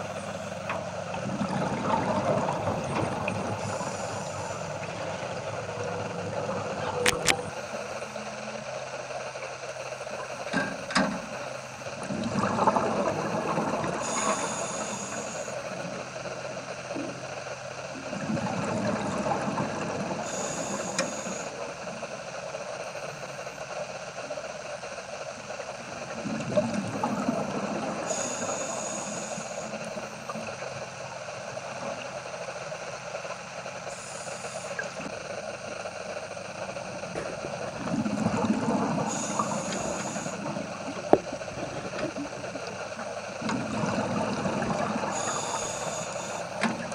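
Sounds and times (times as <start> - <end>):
steady underwater hum: 0.0 - 46.9
bubbles rushing out: 1.2 - 3.8, 12.1 - 14.0, 36.9 - 39.5, 40.3 - 45.2
scuba regulator inhale hiss: 14.0 - 15.6, 20.2 - 21.5, 28.1 - 29.8, 39.0 - 40.4, 45.1 - 46.6.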